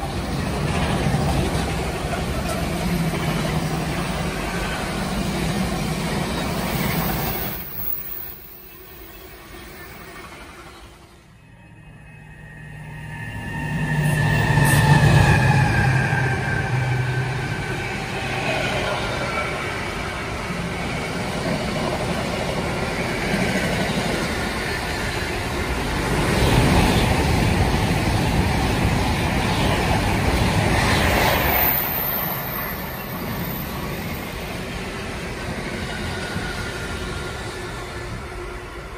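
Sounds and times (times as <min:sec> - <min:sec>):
train wheels rumbling on rails: 0:00.0 - 0:38.9
falling whine: 0:11.2 - 0:21.1.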